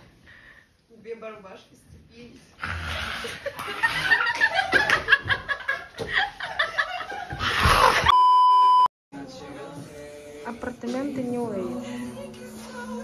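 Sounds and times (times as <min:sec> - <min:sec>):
people laughing and giggling: 0:03.2 - 0:08.1
electronic censor bleep: 0:08.1 - 0:08.9.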